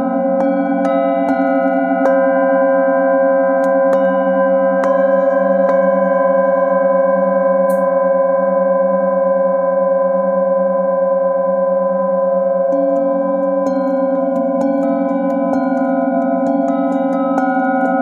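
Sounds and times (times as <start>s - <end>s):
felt mallet striking bowl: 0.0s - 2.8s, 3.5s - 8.0s, 12.7s - 18.0s
metal singing bowls ringing: 0.0s - 9.5s, 11.8s - 18.0s.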